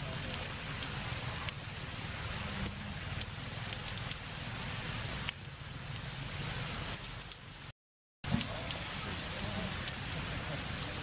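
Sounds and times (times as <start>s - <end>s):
heavy rain falling: 0.0s - 11.0s.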